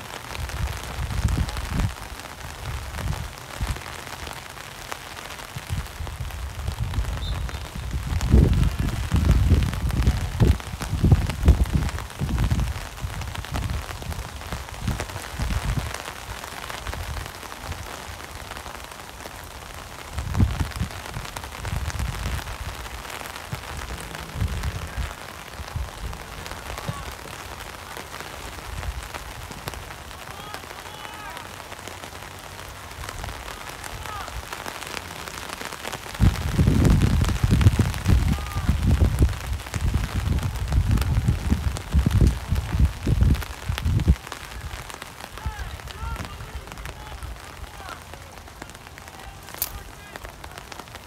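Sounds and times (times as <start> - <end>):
rain falling: 0.0 - 51.0
distant shouts: 23.0 - 28.7, 29.6 - 35.6, 37.9 - 38.8, 44.2 - 51.0.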